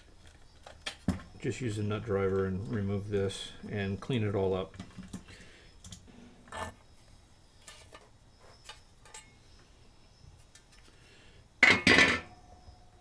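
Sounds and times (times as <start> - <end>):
metal clatter: 11.6 - 12.4.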